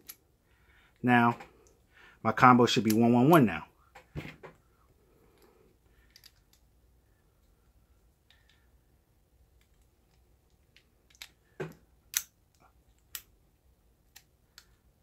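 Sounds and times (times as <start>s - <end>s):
lock parts ticking and rattling: 9.5s - 13.4s.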